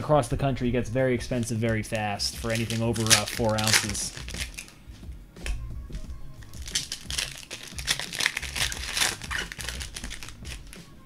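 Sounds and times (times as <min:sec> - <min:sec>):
background music: 0:00.0 - 0:11.0
card wrappers crinkling: 0:01.4 - 0:04.8, 0:06.4 - 0:10.8.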